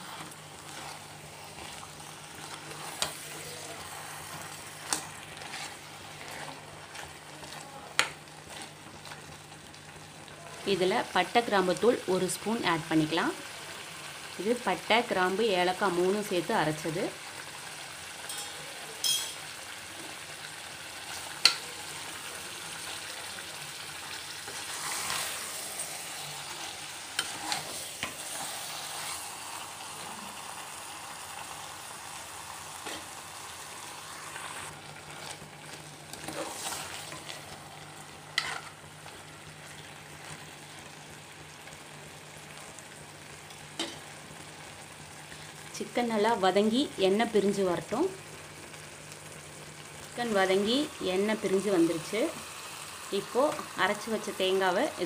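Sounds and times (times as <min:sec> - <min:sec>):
chicken sizzling in oil: 0:00.0 - 0:55.0
metal spoon clinking on pot: 0:18.3 - 0:19.4.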